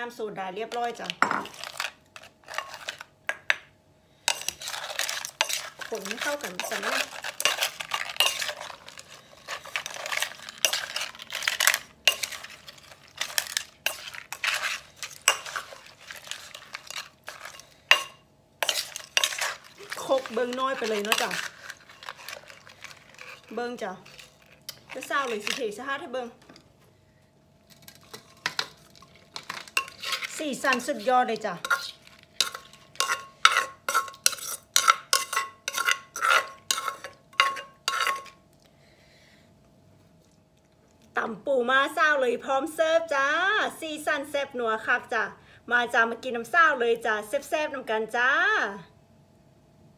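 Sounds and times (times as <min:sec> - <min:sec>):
spoon scraping clay mortar: 0:00.7 - 0:03.1, 0:04.3 - 0:25.8, 0:27.7 - 0:38.4.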